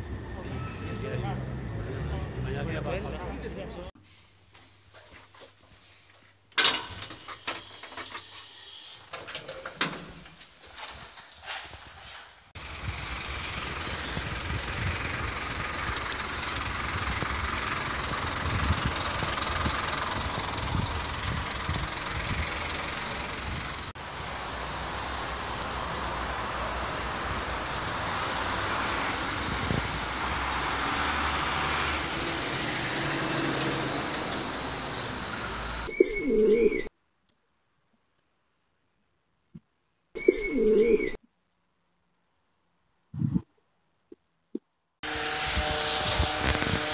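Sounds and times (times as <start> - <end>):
cars passing in traffic: 0.0 - 4.0, 12.5 - 36.0
pigeon cooing: 40.2 - 41.2.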